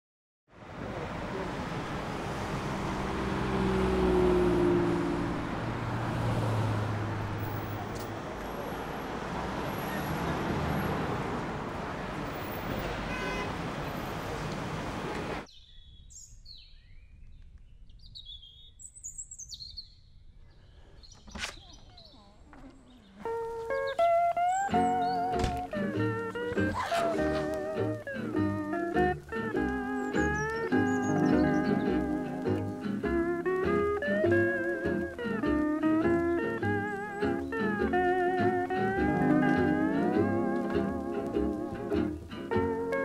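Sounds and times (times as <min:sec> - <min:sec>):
traffic passing: 0:00.5 - 0:15.5, 0:21.8 - 0:43.0
vehicle engine: 0:00.6 - 0:15.5
small birds chirping: 0:15.4 - 0:38.9.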